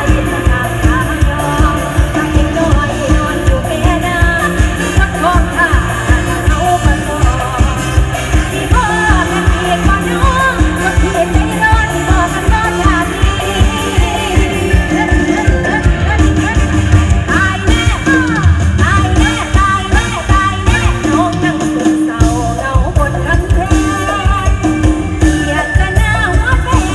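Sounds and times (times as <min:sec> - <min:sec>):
band playing with heavy beat: 0:00.0 - 0:26.9
woman singing: 0:00.0 - 0:26.9.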